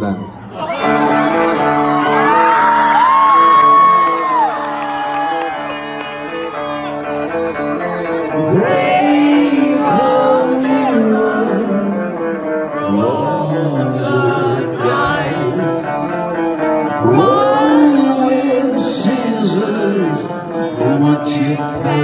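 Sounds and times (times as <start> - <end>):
live rock band playing: 0.7 - 22.0
man singing lead vocals: 8.1 - 22.0.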